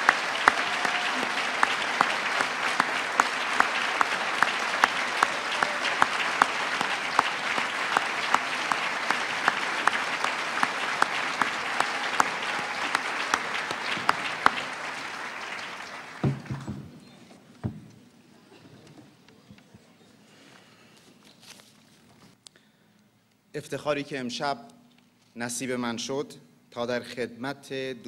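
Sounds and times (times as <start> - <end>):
close hands clapping sharply: 0.0 - 16.8
audience applauding: 0.0 - 17.2.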